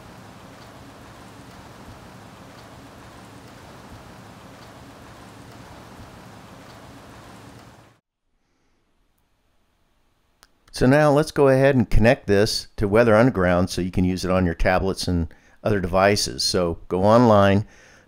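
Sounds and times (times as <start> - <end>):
steady rain hiss: 0.0 - 8.0, 9.0 - 18.0
faint drip ticks: 0.5 - 7.8.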